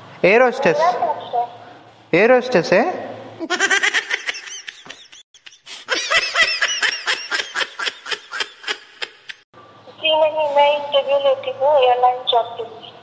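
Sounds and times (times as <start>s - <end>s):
person giggling: 3.4s - 9.4s.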